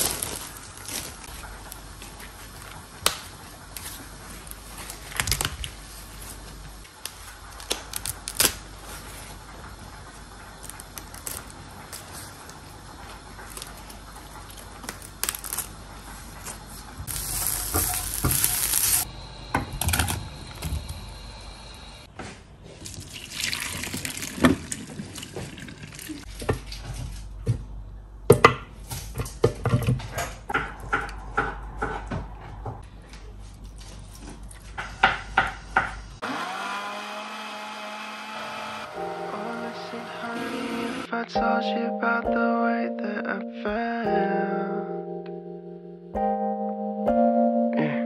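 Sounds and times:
water splashing into sink: 23.0 - 26.2
blender motor humming: 36.2 - 41.1.

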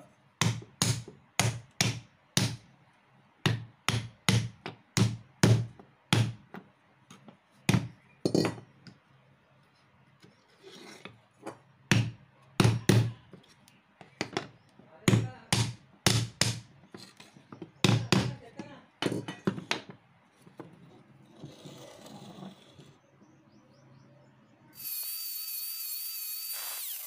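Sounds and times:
hammer knocking on wood: 17.6 - 18.4.

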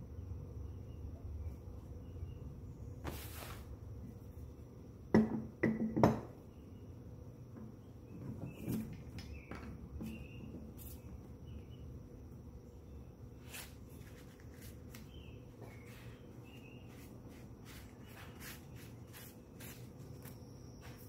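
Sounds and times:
clamp knocking on wooden workbench: 5.1 - 6.3.

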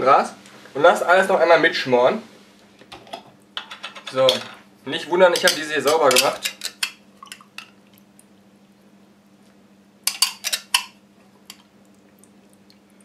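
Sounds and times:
sprouts clinking on steel pan: 5.4 - 7.0.

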